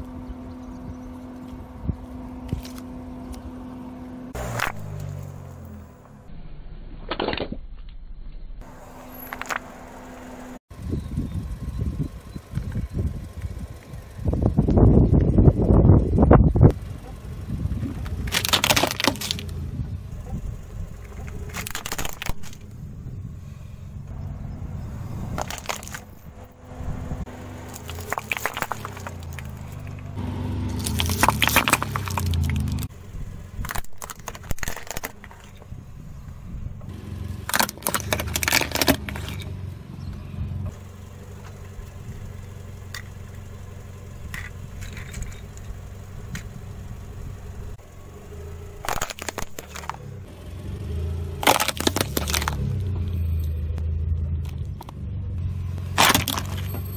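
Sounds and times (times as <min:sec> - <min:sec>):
car engine running: 0:00.0 - 0:06.5, 0:08.6 - 0:56.9
plastic cracking and crunching: 0:18.0 - 0:19.5, 0:21.5 - 0:22.6, 0:25.4 - 0:26.1, 0:27.7 - 0:29.8, 0:30.8 - 0:32.9, 0:33.6 - 0:35.6, 0:37.5 - 0:39.4, 0:48.8 - 0:50.0, 0:51.4 - 0:52.6, 0:56.0 - 0:56.7.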